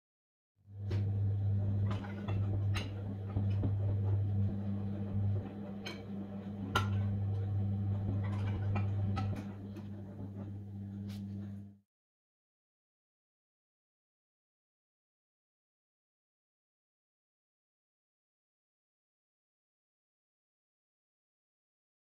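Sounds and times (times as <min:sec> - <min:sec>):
steady low hum: 0:00.7 - 0:11.8.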